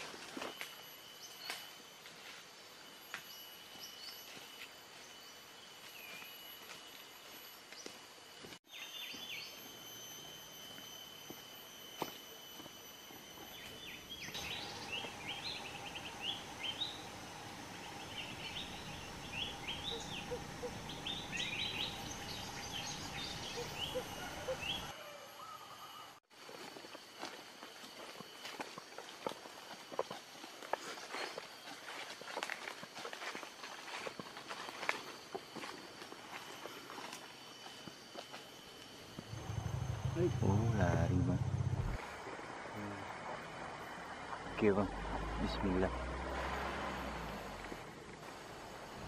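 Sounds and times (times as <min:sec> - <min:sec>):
insects droning: 0:00.0 - 0:49.0
birds chirping: 0:13.5 - 0:25.0, 0:39.2 - 0:42.0.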